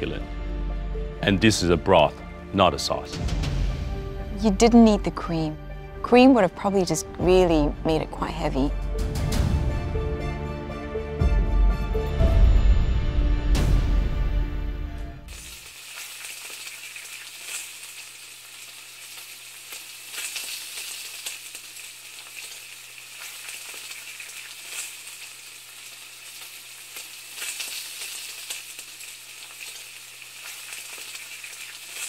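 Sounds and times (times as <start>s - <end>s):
food sizzling in a pan: 15.3s - 32.0s.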